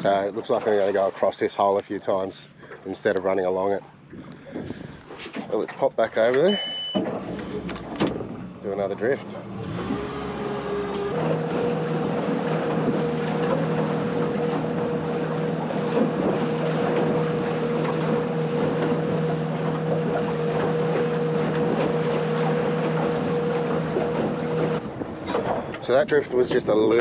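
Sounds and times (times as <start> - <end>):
outboard motor humming: 0.0 - 27.0
wind buffeting microphone: 4.0 - 5.6, 11.3 - 27.0.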